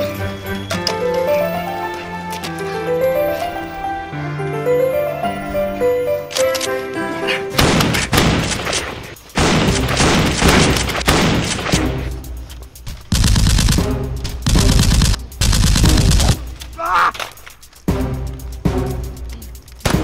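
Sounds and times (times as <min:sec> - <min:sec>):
music score: 0:00.0 - 0:07.8
rapid gunfire bursts: 0:07.6 - 0:12.0, 0:13.1 - 0:16.5.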